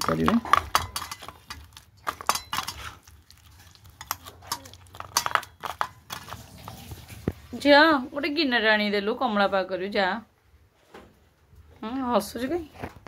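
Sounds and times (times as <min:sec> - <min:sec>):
clinks against steel bowls: 0:00.0 - 0:06.4.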